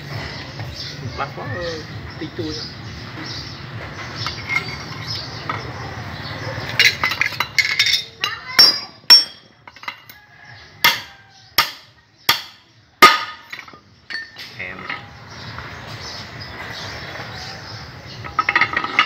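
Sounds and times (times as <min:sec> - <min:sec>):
metal parts clinking: 0:04.2 - 0:05.6, 0:06.7 - 0:10.2, 0:18.2 - 0:19.0.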